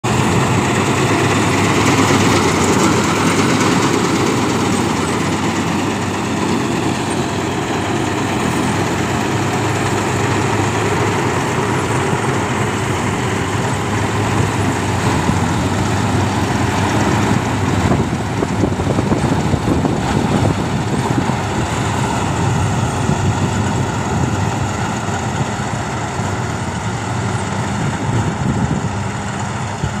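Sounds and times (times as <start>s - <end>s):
combine harvester engine and machinery: 0.0s - 30.0s.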